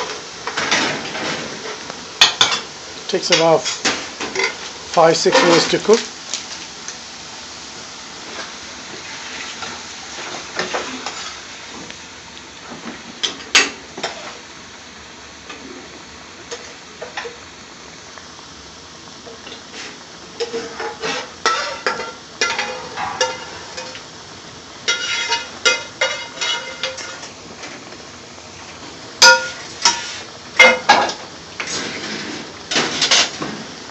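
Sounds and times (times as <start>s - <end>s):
sauce sizzling in a pan: 0.0s - 33.9s
metal utensil scraping a pan: 20.4s - 24.0s, 24.9s - 27.2s, 29.2s - 30.8s.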